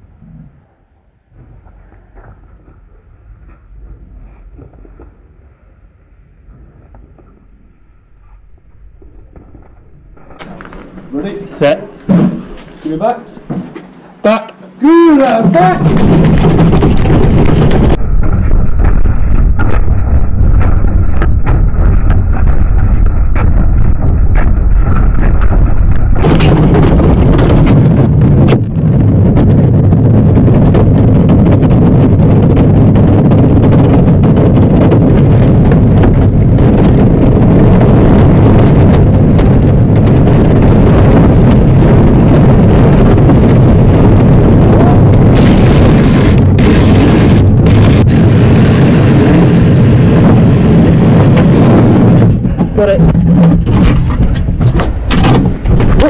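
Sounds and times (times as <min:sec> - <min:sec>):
sled runners rumbling on ice: 0:14.9 - 0:56.0
sled body rattling and knocking: 0:15.3 - 0:45.4, 0:47.7 - 0:56.0.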